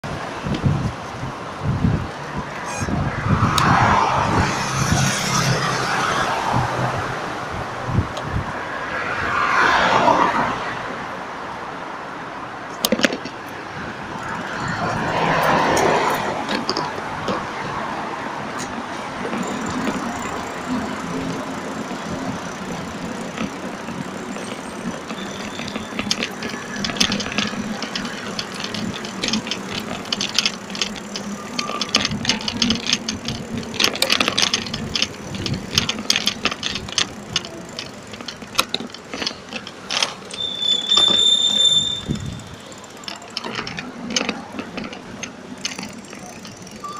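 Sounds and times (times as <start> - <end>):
bicycle rattling over paving: 0.0 - 10.7, 12.6 - 46.9
cars passing: 0.0 - 46.9.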